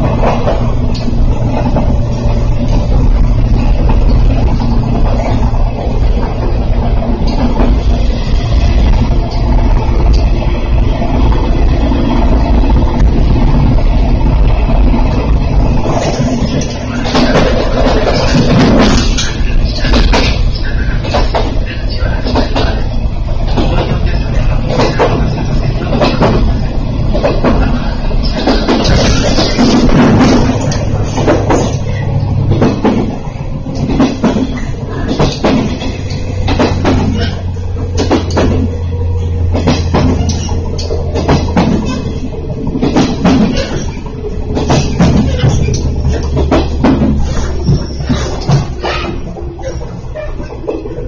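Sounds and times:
train wheels rumbling on rails: 0:00.0 - 0:51.0
short knocks and clanks: 0:25.9 - 0:49.8.

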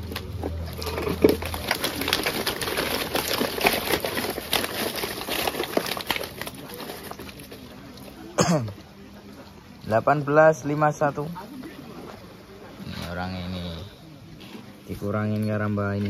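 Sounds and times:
fish shifting in a net bag: 0:00.0 - 0:08.3.

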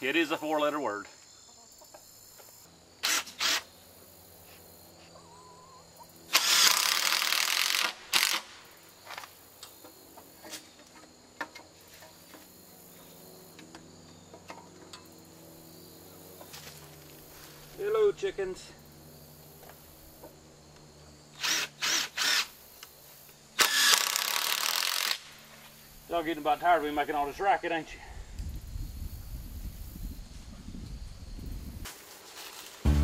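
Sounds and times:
crickets chirping: 0:00.0 - 0:32.9
cordless drill driving screws: 0:03.0 - 0:03.6, 0:06.3 - 0:08.4, 0:21.4 - 0:22.5, 0:23.6 - 0:25.2.

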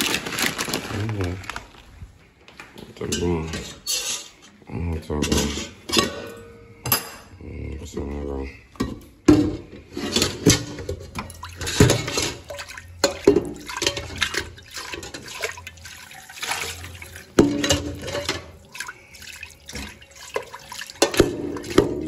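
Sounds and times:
pot clanking against sink: 0:08.8 - 0:15.6, 0:16.4 - 0:18.6, 0:19.7 - 0:22.0.

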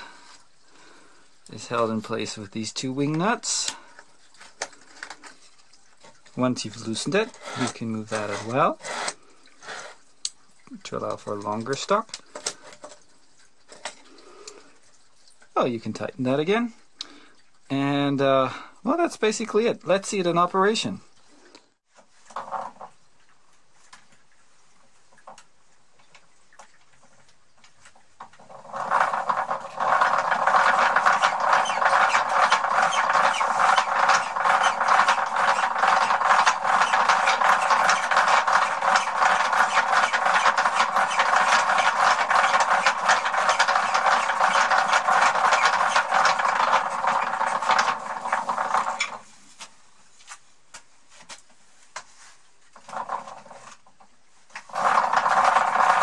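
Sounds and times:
wooden gears clattering: 0:27.1 - 0:49.2, 0:54.6 - 0:56.0.

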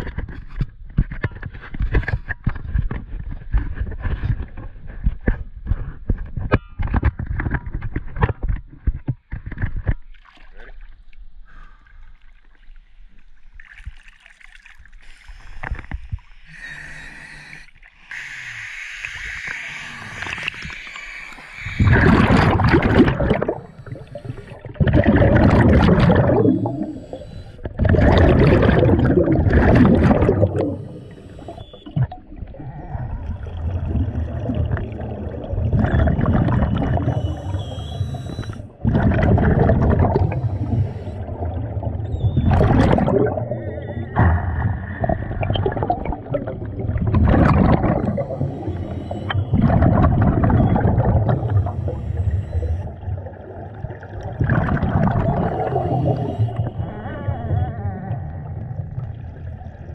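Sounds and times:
regulator inhale hiss: 0:15.0 - 0:22.0, 0:23.4 - 0:24.8, 0:26.4 - 0:27.8, 0:30.5 - 0:31.9, 0:37.1 - 0:38.7, 0:40.2 - 0:41.5, 0:47.9 - 0:49.5, 0:51.2 - 0:53.0, 0:55.6 - 0:56.8
exhaled bubbles rushing: 0:18.6 - 0:59.9.

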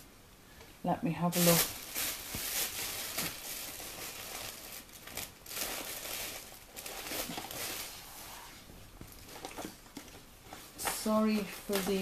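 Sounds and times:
paper rustling and crinkling: 0:01.3 - 0:08.2, 0:09.0 - 0:12.0.

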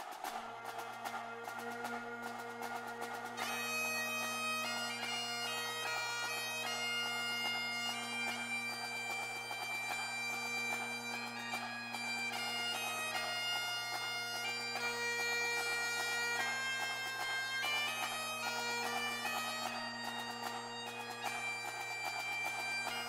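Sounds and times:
instrumental melody over drone: 0:05.2 - 0:14.9.

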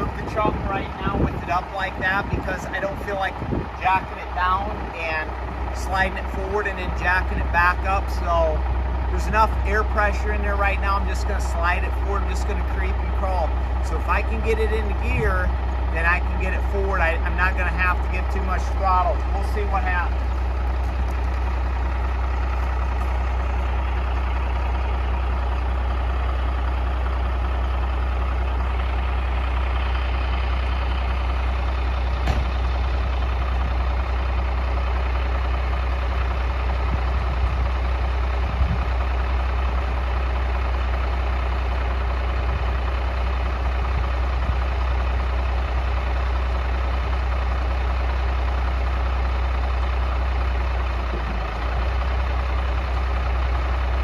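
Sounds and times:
diesel truck engine idling: 0:00.0 - 0:54.0
brief knocks: 0:32.2 - 0:32.5.

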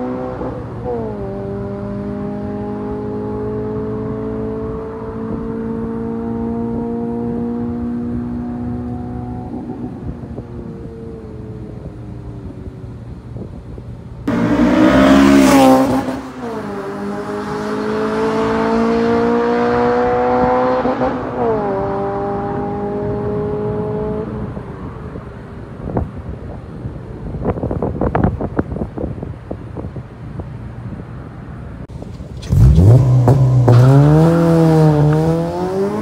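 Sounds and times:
car accelerating away: 0:00.0 - 0:11.9, 0:14.2 - 0:24.9, 0:32.1 - 0:36.0
car passing at speed: 0:14.2 - 0:25.6, 0:31.9 - 0:36.0.

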